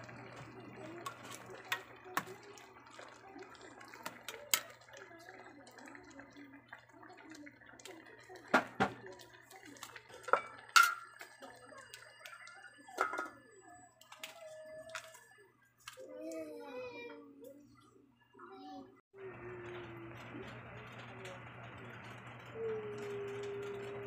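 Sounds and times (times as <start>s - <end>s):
pot simmering: 0.0s - 16.2s, 19.1s - 24.0s
metal pot lid clinks: 10.3s - 11.2s, 13.0s - 13.4s.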